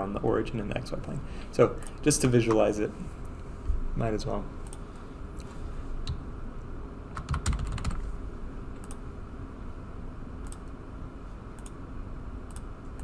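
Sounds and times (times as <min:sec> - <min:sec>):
low room hum: 0:00.0 - 0:13.0
keyboard typing: 0:07.2 - 0:08.1.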